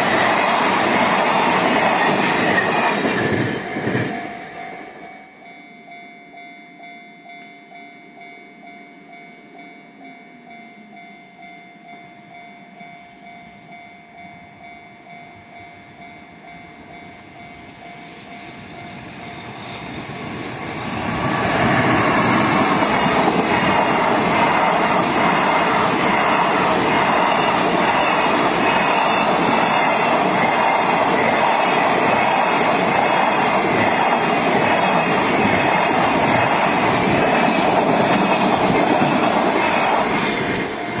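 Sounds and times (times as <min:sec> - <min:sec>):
clattering train wheels: 0:00.0 - 0:04.6, 0:16.8 - 0:41.0
freight train passing: 0:00.0 - 0:41.0
level-crossing warning bell: 0:00.0 - 0:41.0.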